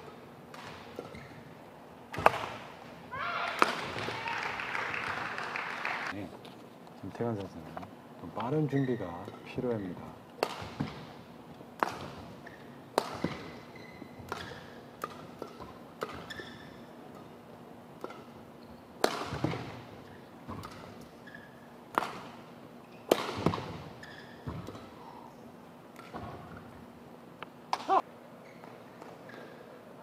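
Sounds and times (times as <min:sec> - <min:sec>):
shoes squeaking on court: 0:00.6 - 0:01.6, 0:08.4 - 0:09.5, 0:11.8 - 0:17.4, 0:18.0 - 0:26.9, 0:27.9 - 0:29.8
rackets striking shuttlecock: 0:02.1 - 0:02.7, 0:10.4 - 0:11.2, 0:11.8 - 0:17.4, 0:18.0 - 0:25.0, 0:25.9 - 0:26.7.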